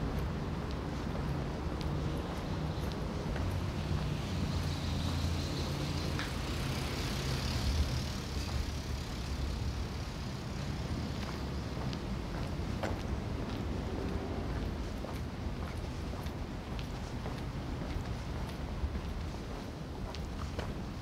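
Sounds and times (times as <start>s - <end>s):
vehicle passing by: 2.5s - 11.6s.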